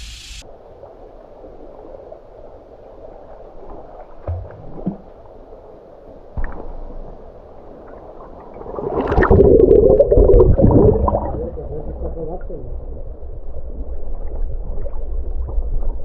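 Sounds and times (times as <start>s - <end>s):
muffled water sloshing: 0.5s - 16.0s
underwater gurgling and splashing: 6.4s - 16.0s.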